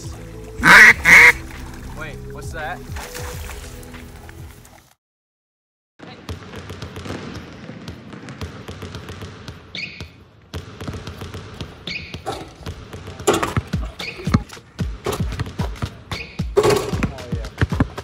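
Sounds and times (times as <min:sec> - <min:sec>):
basketball bouncing on concrete: 0:06.3 - 0:18.0.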